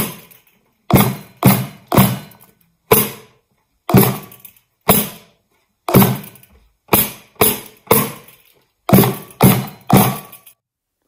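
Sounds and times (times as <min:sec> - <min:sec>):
bucket drum struck with mallet: 0:00.9 - 0:03.3, 0:03.9 - 0:05.2, 0:05.9 - 0:08.3, 0:08.9 - 0:10.4.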